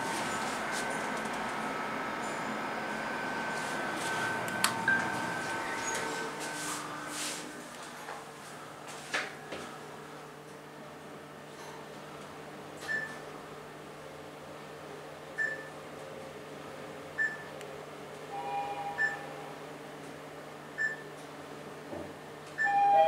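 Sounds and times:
elevator car humming: 0.0 - 8.1, 18.3 - 20.2, 22.5 - 23.0
elevator chime: 1.7 - 6.7, 18.3 - 19.6, 22.6 - 23.0
brief lower tone: 2.2 - 6.5, 18.3 - 19.6, 22.6 - 23.0
short high beeps: 18.3 - 19.3.

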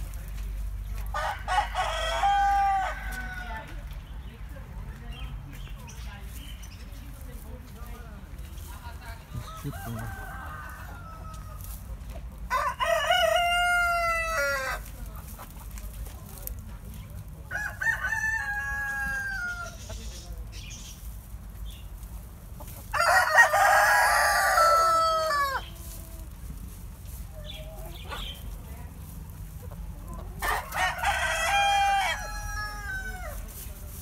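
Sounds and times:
roosters crowing: 1.0 - 3.9, 9.3 - 15.0, 17.4 - 20.2, 22.7 - 26.6, 30.1 - 33.8.

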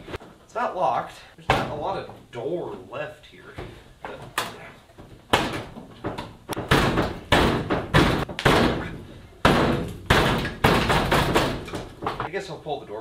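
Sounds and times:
door rattle: 4.3 - 12.3
heavy metal thuds on car door: 6.4 - 12.3.

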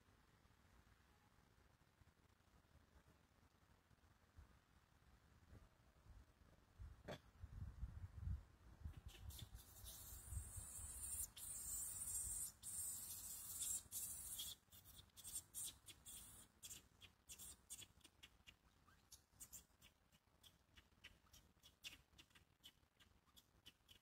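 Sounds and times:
steady high hiss: 9.0 - 18.0.

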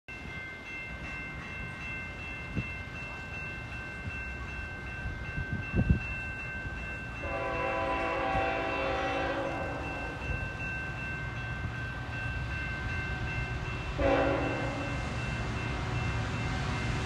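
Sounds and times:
locomotive horn chord: 7.2 - 10.2, 14.0 - 15.0.

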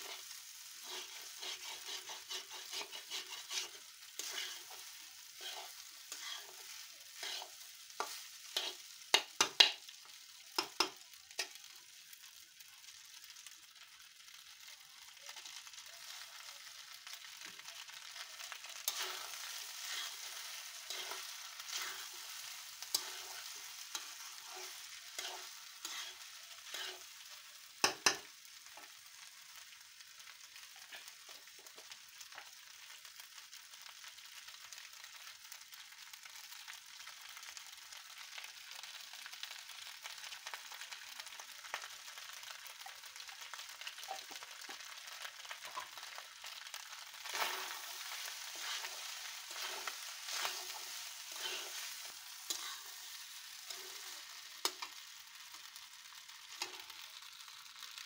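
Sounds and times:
metal spatula scraping a pan: 0.0 - 9.6, 18.7 - 28.9, 45.6 - 55.0
rice sizzling in an oiled pan: 0.0 - 58.0.

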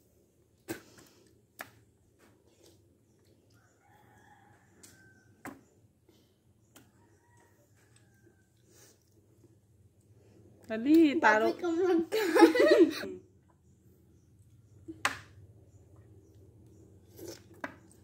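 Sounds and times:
rooster crowing: 3.6 - 5.4, 6.8 - 8.6.

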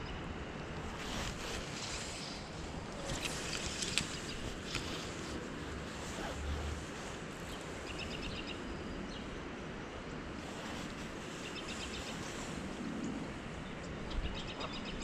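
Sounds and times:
creek water flowing: 0.3 - 8.7.

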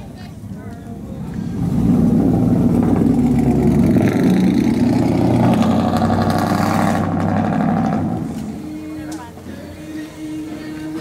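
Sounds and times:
truck engine driving off: 0.3 - 11.0.

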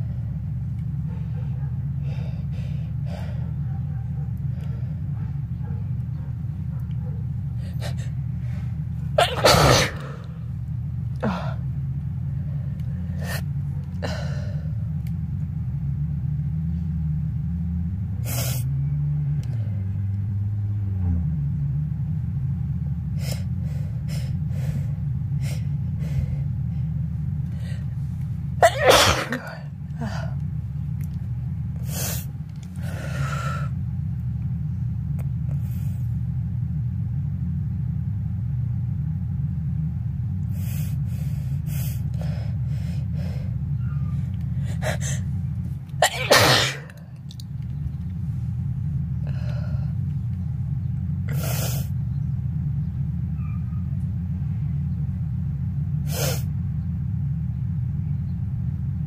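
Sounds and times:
steady low hum: 0.0 - 59.0
person sniffing and breathing: 2.0 - 3.5, 7.6 - 8.8, 18.2 - 18.7, 31.8 - 33.8, 35.6 - 36.2, 40.5 - 43.6, 44.6 - 45.3, 51.3 - 51.9, 56.1 - 56.5
person sneezing: 9.2 - 10.3, 28.6 - 29.7, 46.0 - 46.9.

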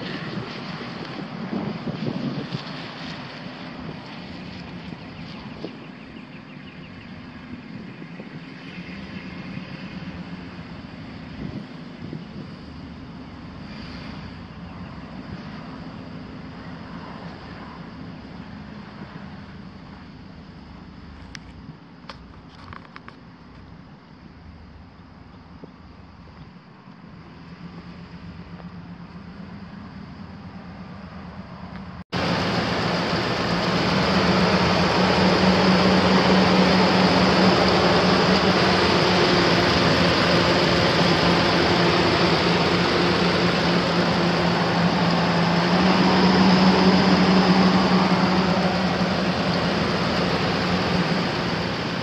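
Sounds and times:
road and wind noise: 0.0 - 52.0
pickup truck engine running: 32.2 - 52.0.

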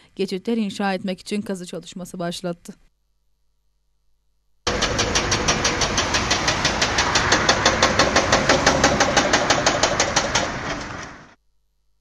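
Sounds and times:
excavator engine knocking rapidly: 4.7 - 11.4.

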